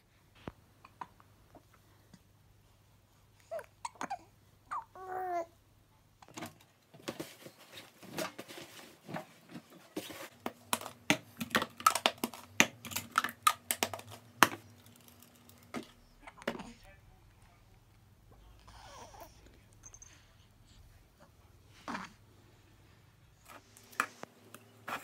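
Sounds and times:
baby cooing and babbling: 0:03.4 - 0:05.6, 0:18.6 - 0:19.4, 0:21.8 - 0:22.2
plastic baby bottles clattering: 0:06.2 - 0:16.7
laundry rustling at washing machine: 0:06.3 - 0:13.1.

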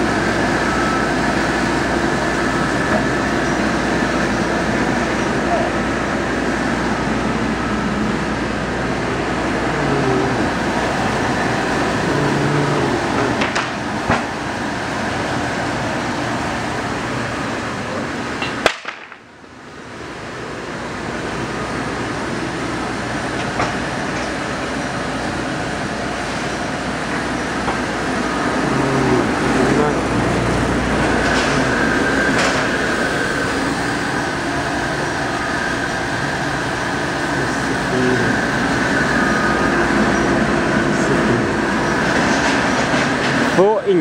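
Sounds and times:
foam cutting machine running: 0:00.0 - 0:18.5, 0:19.7 - 0:44.0
machine knocks: 0:13.3 - 0:14.4.

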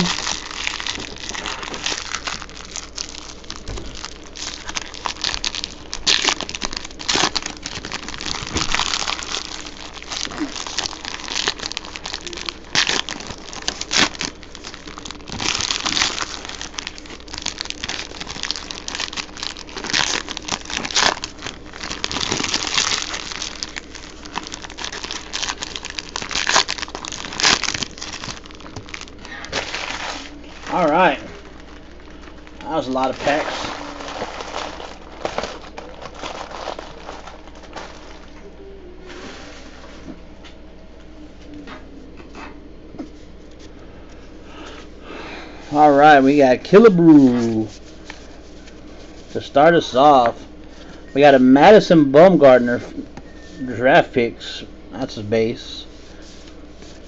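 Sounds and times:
packs being torn open: 0:00.0 - 0:38.3
plastic foil wrappers crinkling: 0:00.0 - 0:38.5, 0:45.7 - 0:53.8, 0:55.0 - 0:57.0.

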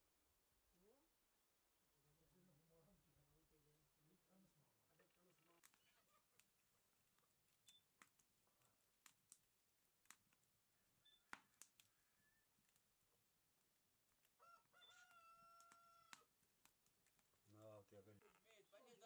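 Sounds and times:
wood fire crackling: 0:00.2 - 0:19.0
rooster crowing: 0:10.7 - 0:12.6, 0:14.4 - 0:16.3.

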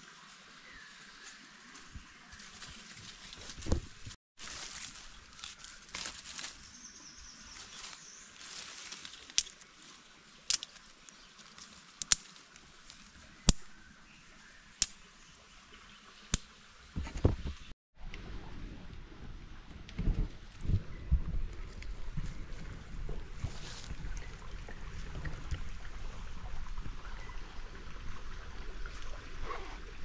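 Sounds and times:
dry leaves and twigs rustling: 0:00.0 - 0:15.0, 0:21.4 - 0:24.3.

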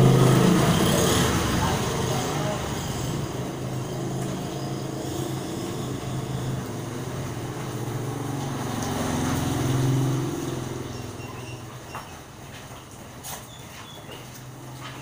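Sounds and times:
motor scooter engine passing: 0:00.0 - 0:12.5.

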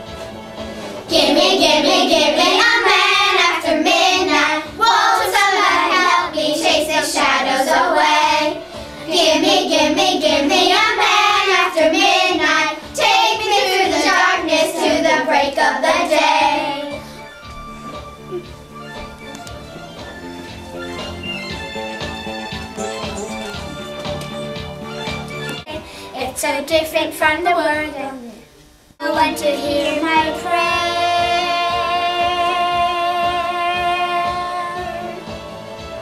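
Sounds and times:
backing track: 0:00.0 - 0:26.0
girls singing into microphone: 0:01.1 - 0:17.0, 0:29.0 - 0:35.2.

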